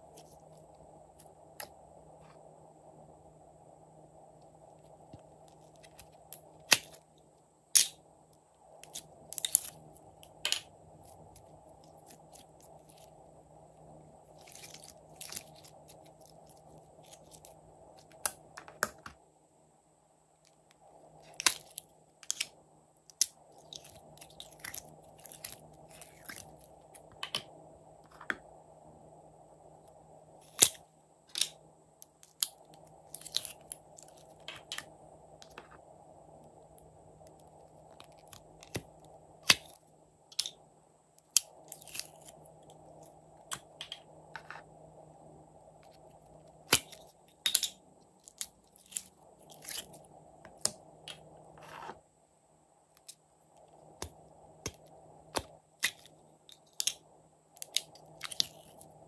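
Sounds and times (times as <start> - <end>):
slime crackling and squishing: 14.2 - 18.5.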